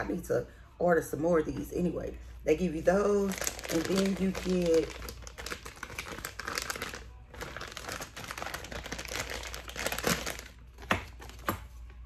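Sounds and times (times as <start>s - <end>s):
plastic bag crinkling: 3.2s - 11.4s.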